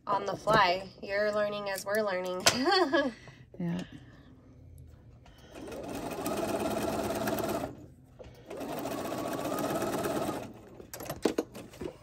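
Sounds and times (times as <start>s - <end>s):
sewing machine stitching: 5.5s - 11.8s.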